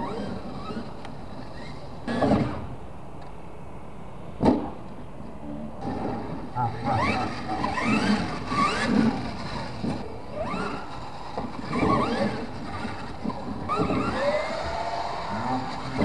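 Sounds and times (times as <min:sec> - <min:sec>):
toy truck motor whining: 0:00.0 - 0:02.6, 0:05.8 - 0:16.0.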